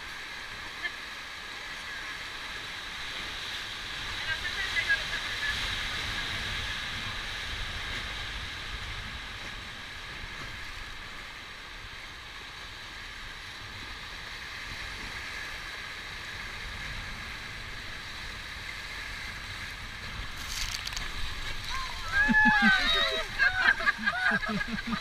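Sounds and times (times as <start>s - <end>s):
low water rumble: 0.0s - 25.0s
river rapids rushing: 19.7s - 25.0s.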